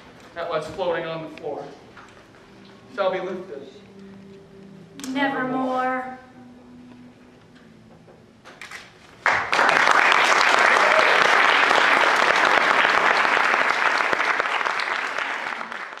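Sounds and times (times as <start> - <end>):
audience applause: 9.2 - 16.0.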